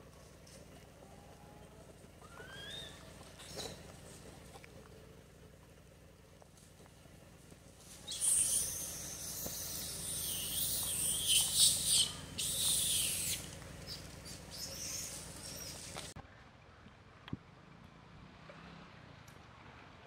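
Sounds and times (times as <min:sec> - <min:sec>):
faint squeaks: 0:00.0 - 0:04.6
baby monkey screaming: 0:02.2 - 0:03.0, 0:07.9 - 0:16.1.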